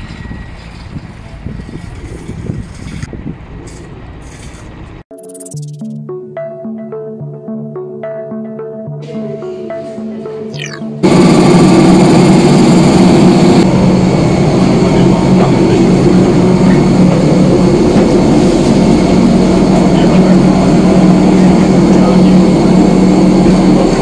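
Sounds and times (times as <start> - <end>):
mechanical drone with low hum: 10.5 - 24.0.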